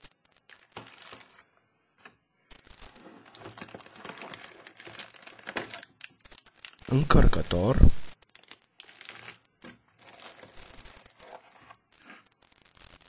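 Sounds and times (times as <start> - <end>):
plastic bags crinkling: 0.4 - 1.6, 2.6 - 7.1, 8.2 - 12.0
cardboard packaging rustling: 0.4 - 7.0, 8.3 - 12.3.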